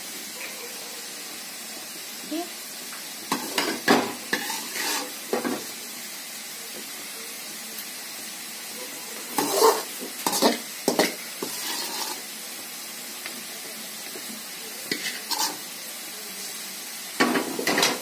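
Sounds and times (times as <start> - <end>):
spatula scraping and knocking on pan: 3.3 - 5.7, 9.3 - 12.2, 14.9 - 15.6, 17.2 - 18.0.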